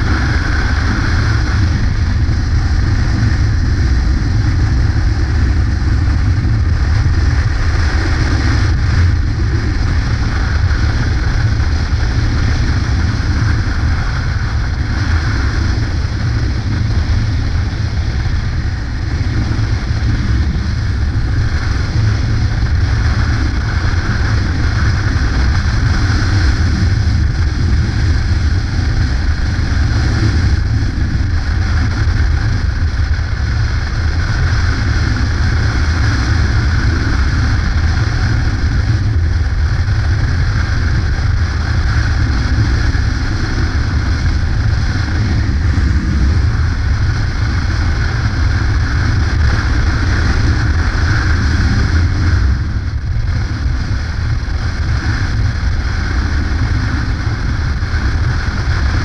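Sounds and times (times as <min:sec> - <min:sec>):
motorcycle engine rumble: 0:00.0 - 0:59.0
wind rushing over microphone: 0:00.0 - 0:59.0.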